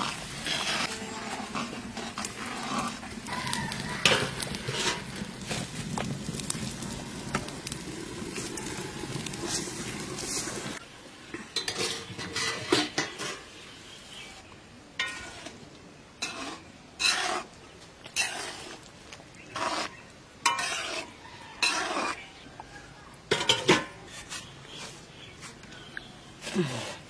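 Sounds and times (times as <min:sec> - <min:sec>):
metal ladle scraping a wok: 0:00.0 - 0:06.8, 0:11.5 - 0:13.6, 0:15.0 - 0:15.6, 0:16.2 - 0:18.9, 0:19.5 - 0:22.2.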